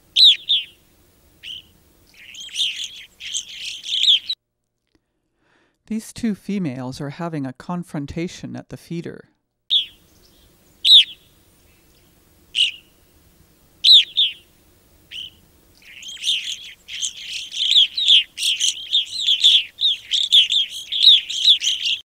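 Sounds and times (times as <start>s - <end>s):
bird call notes: 0.1s - 0.8s, 1.4s - 4.4s, 9.7s - 13.0s, 13.8s - 22.0s.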